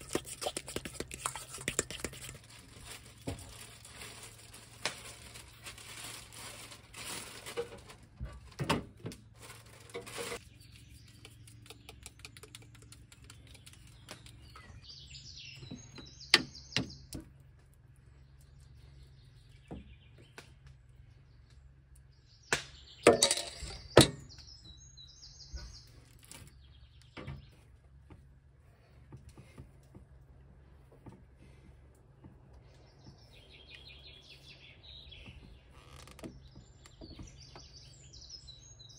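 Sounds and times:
plastic bag crinkling: 0.0s - 8.6s, 9.3s - 10.5s
bird chirping: 10.4s - 17.5s, 18.1s - 27.7s, 32.6s - 38.9s.

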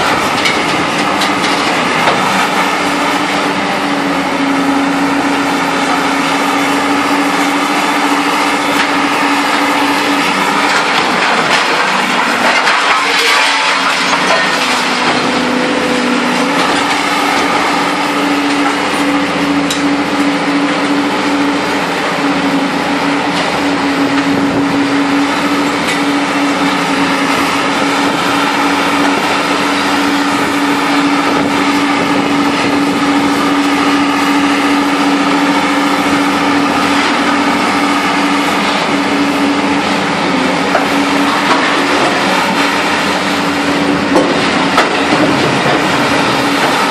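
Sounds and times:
hydraulic machinery droning: 0.0s - 46.9s
scrap metal clanking: 10.1s - 15.5s.

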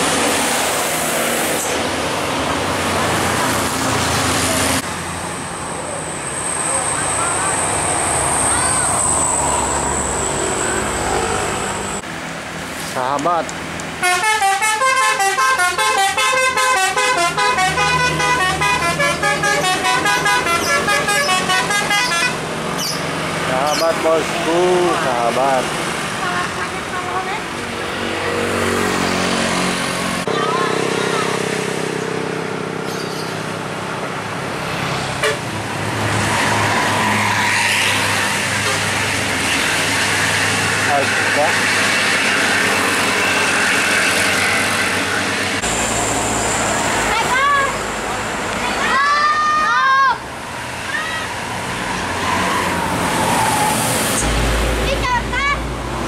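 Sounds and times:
bus engine humming: 0.0s - 36.2s, 37.9s - 56.0s
multi-tone air horn melody: 14.0s - 22.4s.

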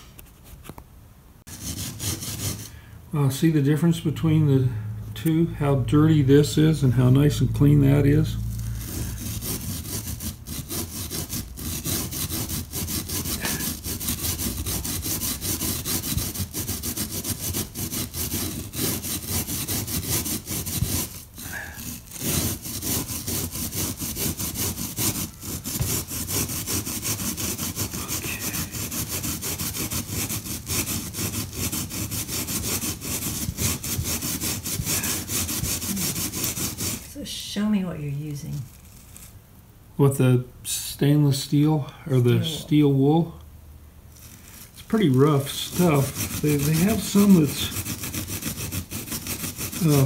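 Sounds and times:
steel wool scrubbing glass edge: 1.5s - 2.8s, 5.2s - 37.4s, 44.2s - 50.0s.

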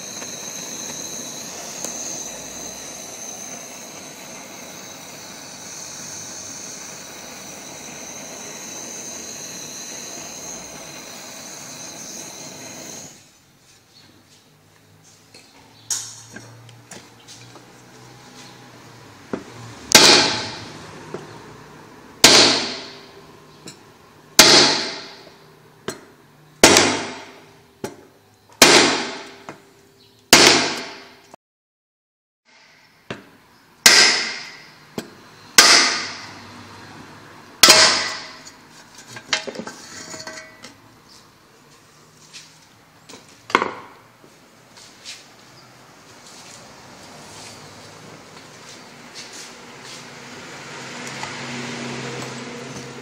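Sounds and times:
hammer striking steel rod: 19.9s - 20.7s, 22.2s - 23.1s, 24.4s - 25.3s, 25.9s - 28.0s, 28.6s - 29.6s, 30.4s - 31.1s, 32.6s - 36.3s, 37.6s - 38.6s.

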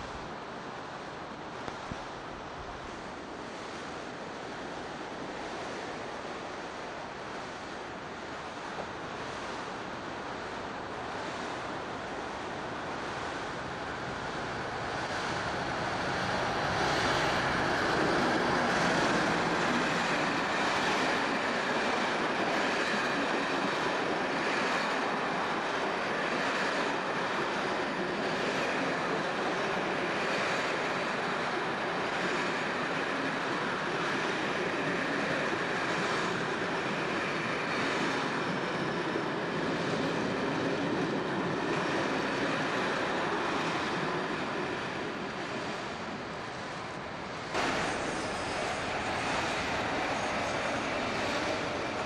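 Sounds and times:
diesel locomotive engine: 0.0s - 52.0s
train wheels clattering on rails: 11.2s - 52.0s.

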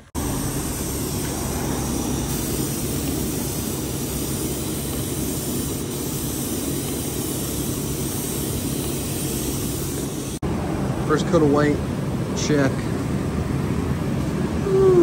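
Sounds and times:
spray gun hissing: 0.0s - 10.4s.

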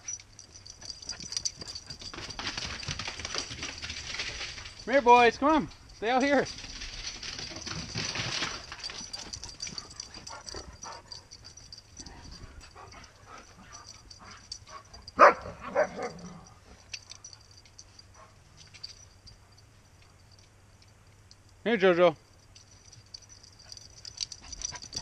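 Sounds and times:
dog barking: 15.2s - 16.4s.

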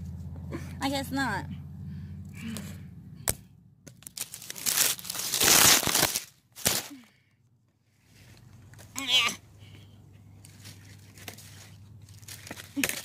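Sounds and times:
dry leaves crunching and rustling: 4.0s - 7.0s, 10.4s - 13.0s.

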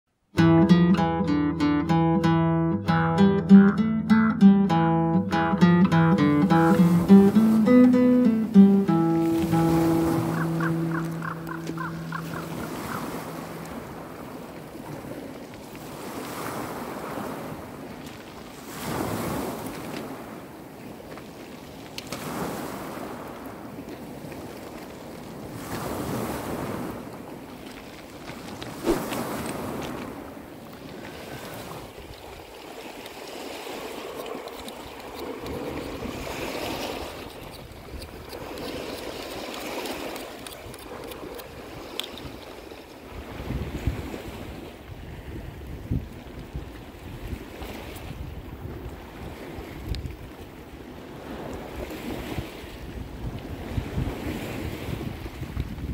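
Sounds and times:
wind on microphone: 9.2s - 20.8s, 33.6s - 55.9s
waves washing over pebble beach: 9.2s - 46.0s
knife clicking on mussel shells: 34.1s - 36.0s, 36.8s - 42.6s.

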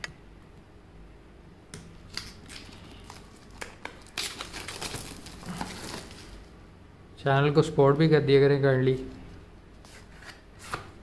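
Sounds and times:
plastic wrapping crinkling: 2.1s - 6.5s.

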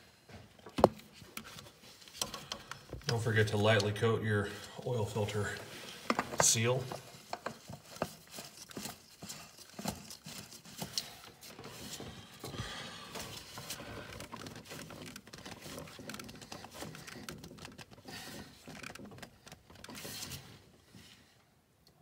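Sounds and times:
scraping and rustling: 5.0s - 21.3s.

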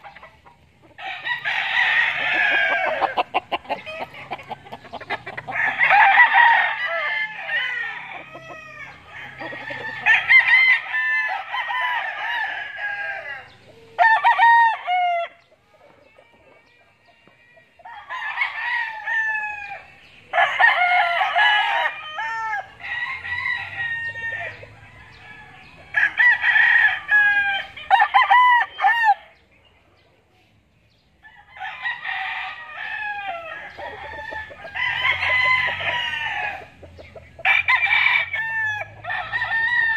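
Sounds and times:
roosters crowing: 0.0s - 29.5s, 30.9s - 39.9s.

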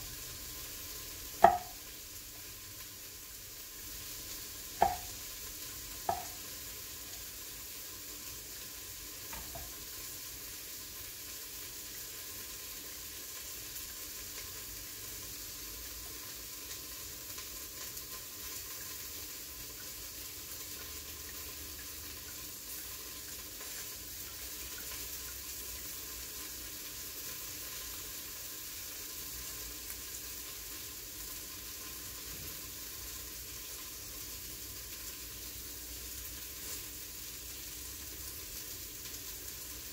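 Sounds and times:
steam hissing from pressure cooker: 0.0s - 39.9s
knife knocking on cutting board: 1.4s - 1.8s, 4.8s - 5.1s, 6.1s - 6.4s, 9.3s - 9.7s.

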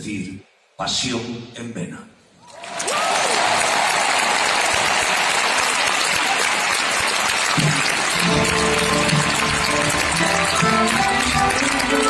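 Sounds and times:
audience applauding: 2.5s - 12.0s
band playing sustained notes: 8.1s - 12.0s.

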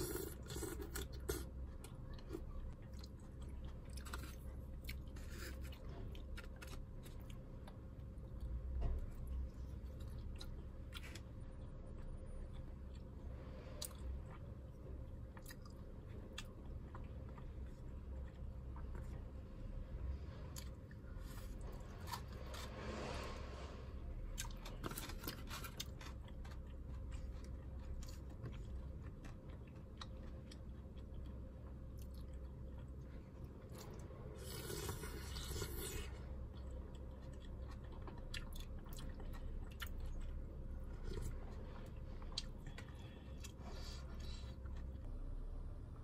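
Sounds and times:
person chewing: 0.0s - 19.4s, 20.4s - 23.3s, 24.3s - 45.2s.

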